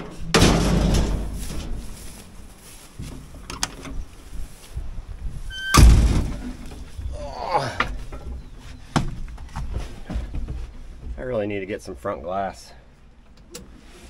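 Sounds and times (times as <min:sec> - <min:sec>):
metal door clunk: 0:00.0 - 0:02.1, 0:05.5 - 0:06.9
door creaking: 0:05.4 - 0:08.6.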